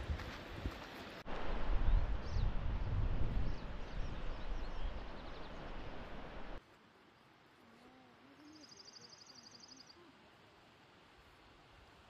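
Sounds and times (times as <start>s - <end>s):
wind buffeting microphone: 0.0s - 6.6s
songbird high trill: 8.4s - 10.0s
faint bird chirps: 8.4s - 10.2s.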